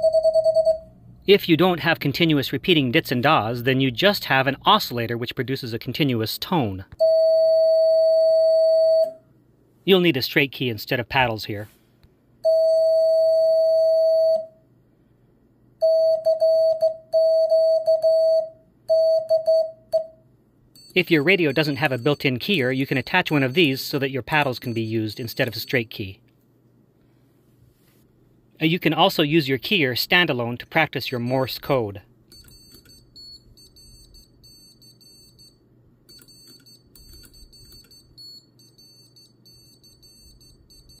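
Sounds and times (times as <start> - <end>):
morse code beeping: 0.0 - 2.4, 15.8 - 20.1, 20.8 - 25.9, 32.4 - 41.0.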